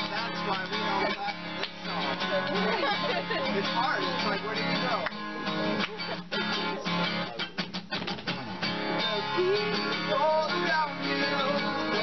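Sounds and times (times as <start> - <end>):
man singing: 0.0 - 5.0, 8.8 - 12.0
acoustic guitars strumming: 0.0 - 12.0.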